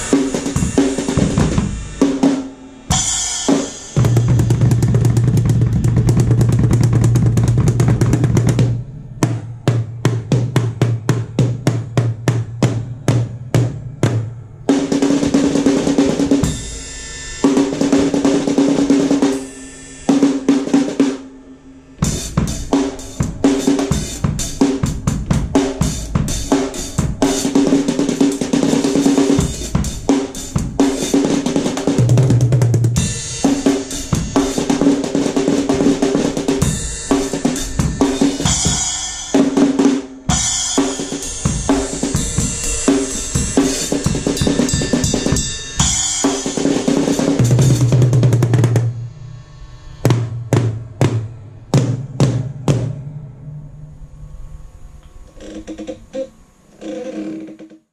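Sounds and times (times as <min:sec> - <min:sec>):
cymbal crashes: 0:00.0 - 0:05.9, 0:06.5 - 0:32.0, 0:32.9 - 0:55.3
bass drum: 0:04.0 - 0:14.4, 0:22.0 - 0:28.0.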